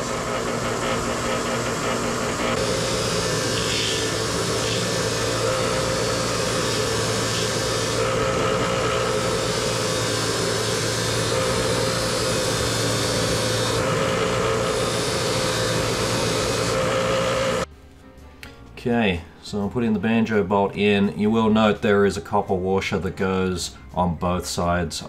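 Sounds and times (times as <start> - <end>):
grinding hiss: 0.0 - 17.6
bench grinder motor hum: 0.0 - 17.7.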